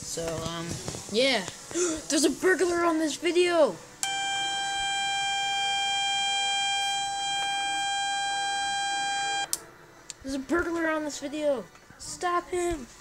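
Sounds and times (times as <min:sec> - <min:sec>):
steady electronic alarm tone: 0:04.0 - 0:09.5.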